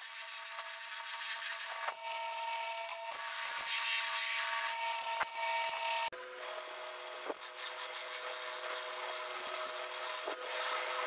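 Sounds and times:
drill press motor whine: 1.9 - 3.7, 4.4 - 7.4.

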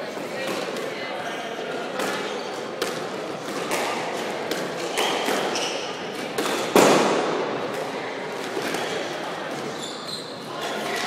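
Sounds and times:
shoe squeaks on wooden floor: 4.8 - 6.1, 9.6 - 10.5.

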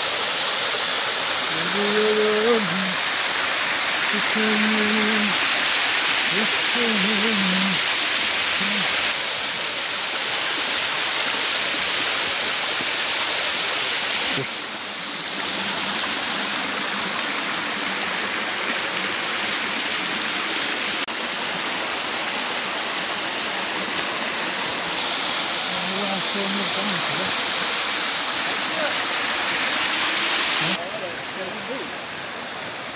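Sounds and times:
stream rushing over rocks: 0.0 - 32.9.

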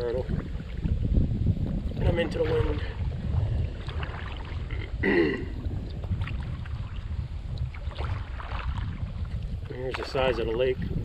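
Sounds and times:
faint water around hull: 0.0 - 11.0
wind buffeting microphone: 0.0 - 11.0.

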